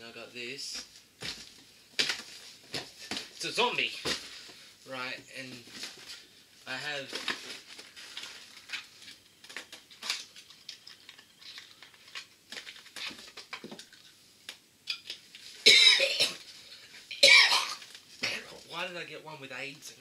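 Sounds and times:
small objects clicking and rustling: 0:07.0 - 0:15.6
man coughing loudly: 0:15.7 - 0:16.4, 0:17.2 - 0:17.8.

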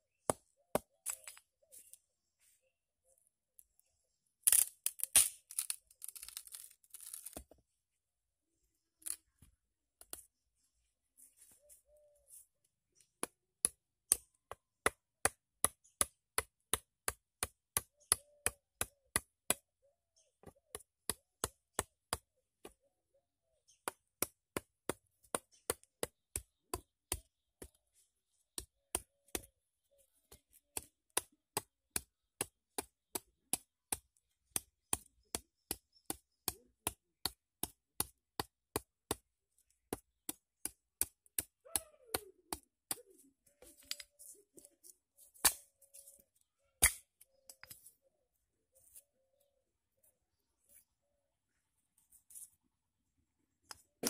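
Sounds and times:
stone chopping wooden stick: 0:23.8 - 0:27.8, 0:28.6 - 0:29.5, 0:30.3 - 0:39.2, 0:39.9 - 0:43.1.

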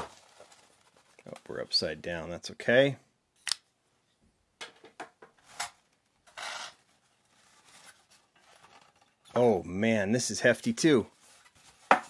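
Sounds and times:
paper and foam packaging rustling: 0:00.0 - 0:01.7, 0:06.8 - 0:09.5, 0:10.6 - 0:12.0.

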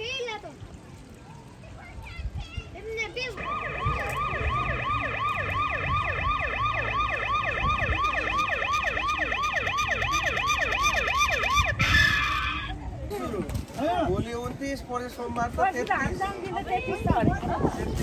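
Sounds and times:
siren yelping: 0:03.4 - 0:12.7.

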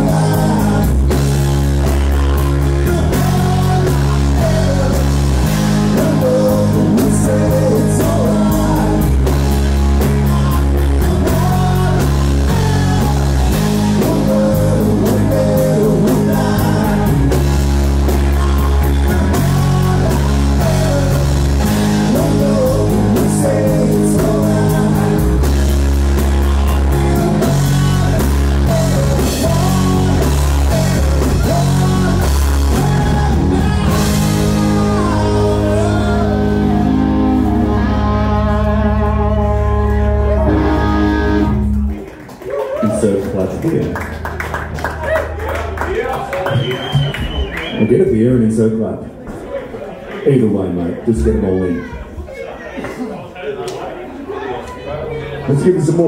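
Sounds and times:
person singing: 0:00.0 - 0:41.9
bass line: 0:00.0 - 0:49.1
guitar: 0:00.0 - 0:56.0.

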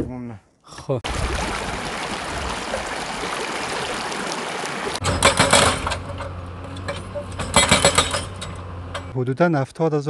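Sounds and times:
fast stream rushing over rocks: 0:01.1 - 0:05.0
excavator humming: 0:04.7 - 0:09.2
hydraulic rock breaker hammering stone: 0:07.4 - 0:08.6.

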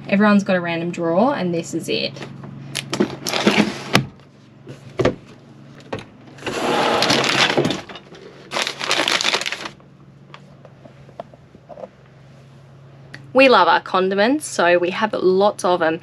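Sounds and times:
drawer shutting with clatter: 0:05.9 - 0:08.2
wire basket sliding out: 0:06.4 - 0:08.6.

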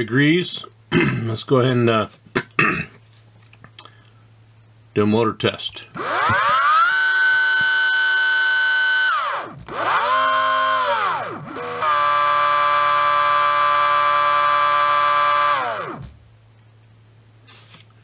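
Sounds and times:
electric motor whining: 0:05.9 - 0:16.2.

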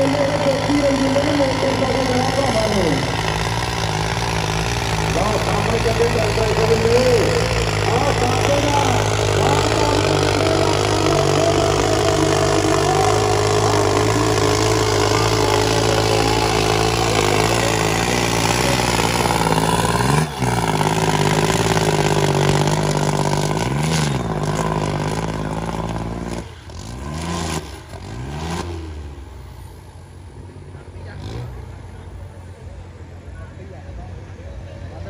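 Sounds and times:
tractor diesel engine under load: 0:00.0 - 0:35.0.

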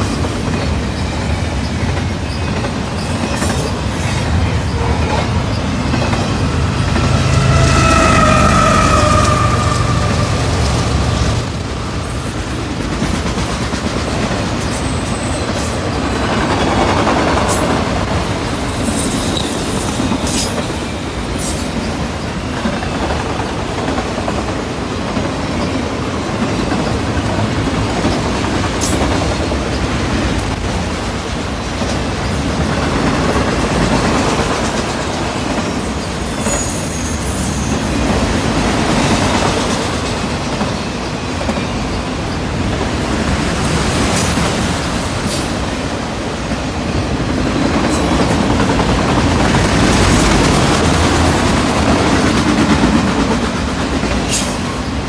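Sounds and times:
steel wheels rumbling on rail: 0:00.0 - 0:55.0
high-pitched wheel squeals: 0:04.6 - 0:11.5.

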